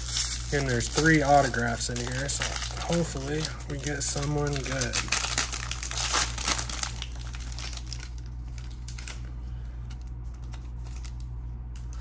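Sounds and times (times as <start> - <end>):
foil wrapper tearing and crinkling: 0.0 - 9.3.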